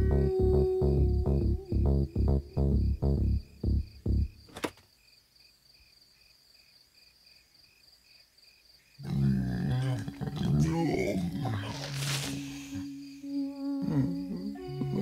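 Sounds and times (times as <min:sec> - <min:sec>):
person speaking: 0:00.0 - 0:02.6, 0:09.0 - 0:15.0
low music notes: 0:00.0 - 0:04.4, 0:12.8 - 0:15.0
music: 0:00.0 - 0:04.4, 0:12.3 - 0:15.0
crickets chirping: 0:00.0 - 0:15.0
sharp click: 0:04.5 - 0:04.8.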